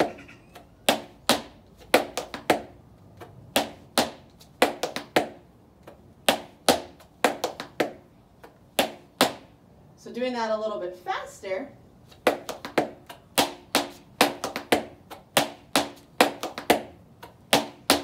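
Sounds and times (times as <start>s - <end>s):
heeled shoes tapping on concrete: 0.0s - 9.5s, 12.1s - 18.0s.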